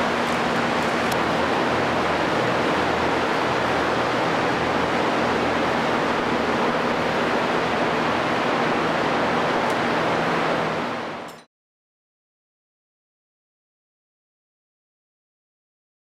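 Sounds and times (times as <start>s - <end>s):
machinery running: 0.0s - 11.4s.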